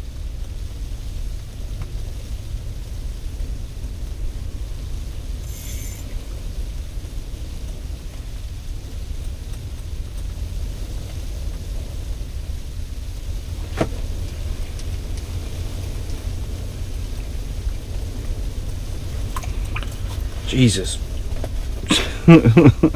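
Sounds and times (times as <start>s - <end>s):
propane heater rumbling with hiss: 0.0s - 22.9s
high ringing tone: 5.4s - 6.3s.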